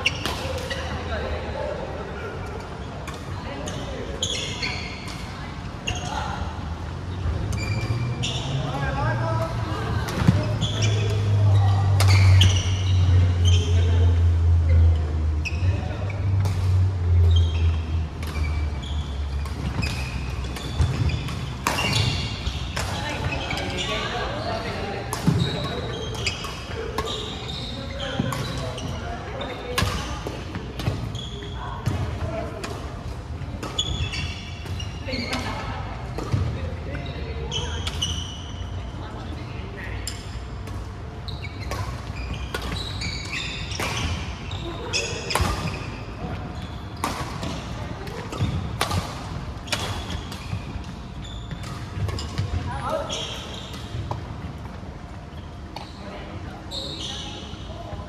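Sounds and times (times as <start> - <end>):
sneakers squeaking on wooden floor: 0.0 - 1.2, 2.2 - 6.5, 7.1 - 57.9
rackets striking shuttlecock: 47.0 - 52.5.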